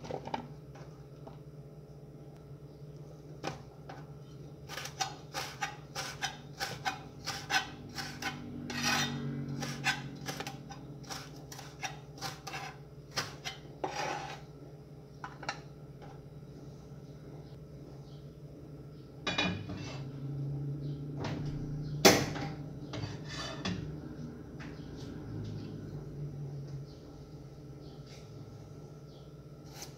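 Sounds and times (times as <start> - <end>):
steady low hum: 0.0 - 29.9
knife scraping cutting board: 4.7 - 14.5, 22.9 - 23.9, 29.6 - 29.9.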